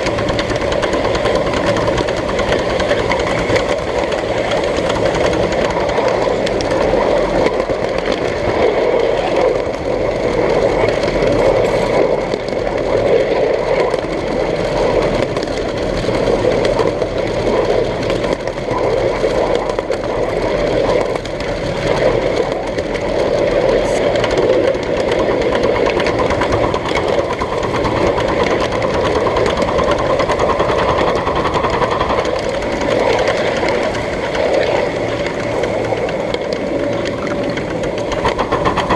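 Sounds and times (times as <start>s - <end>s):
miniature train clattering: 0.0s - 38.9s.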